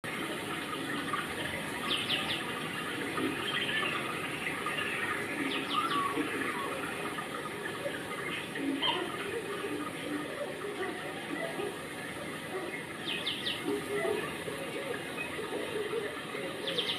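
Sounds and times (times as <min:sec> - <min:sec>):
running water: 0:00.0 - 0:16.9
bird chirping: 0:16.6 - 0:16.9.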